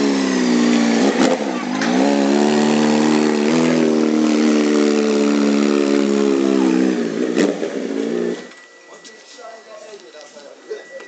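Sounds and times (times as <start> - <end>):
motorcycle engine revving high: 0.0 - 8.5.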